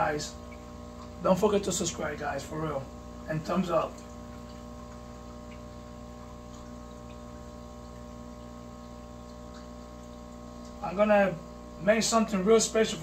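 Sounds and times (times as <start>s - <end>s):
aquarium pumps humming: 0.0s - 13.0s
water trickling: 0.0s - 13.0s
faint water drips: 0.2s - 1.2s, 2.9s - 11.8s.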